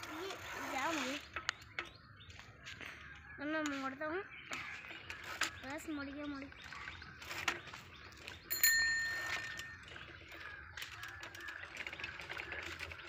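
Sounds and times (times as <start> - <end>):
bicycle bell ding: 8.5 - 9.8.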